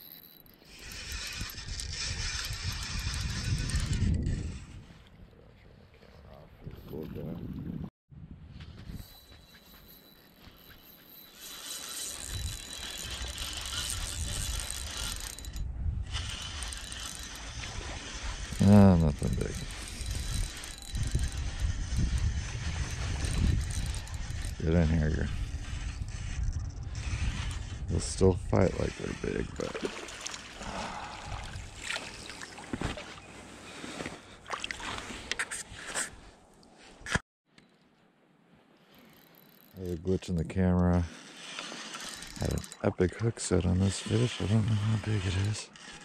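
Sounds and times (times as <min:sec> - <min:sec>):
fishing reel whirring and clicking: 0:00.0 - 0:04.7, 0:09.0 - 0:30.8, 0:38.9 - 0:40.0, 0:41.0 - 0:42.9, 0:44.0 - 0:46.0
water splashing and sloshing: 0:29.6 - 0:36.8.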